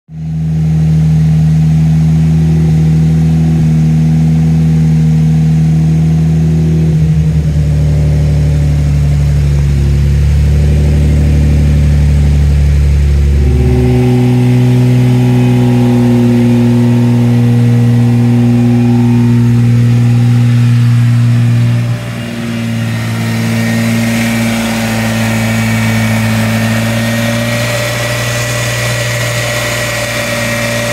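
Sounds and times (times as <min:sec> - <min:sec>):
car engine running: 0:00.1 - 0:30.9
thin high whine: 0:10.5 - 0:30.9.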